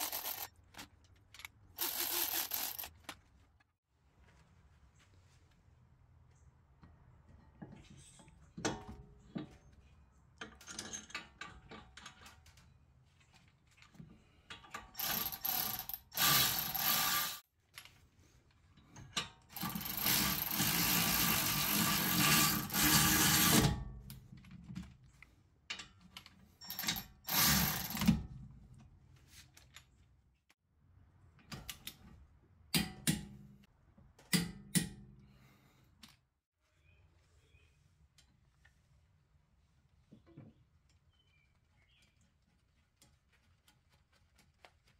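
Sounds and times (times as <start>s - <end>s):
ratchet wrench ratcheting: 0.0s - 0.5s, 1.8s - 2.9s, 15.0s - 17.4s, 19.6s - 23.5s.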